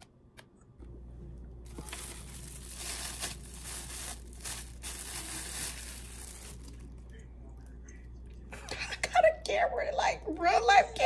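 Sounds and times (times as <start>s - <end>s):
plastic wrapping crinkling: 1.6s - 7.2s.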